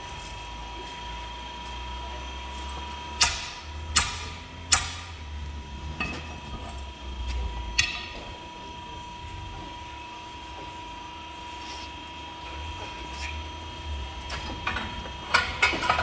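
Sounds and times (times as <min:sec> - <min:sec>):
steady shop hum: 0:00.0 - 0:16.0
hammer striking steel tire iron: 0:03.2 - 0:05.1, 0:07.8 - 0:08.2.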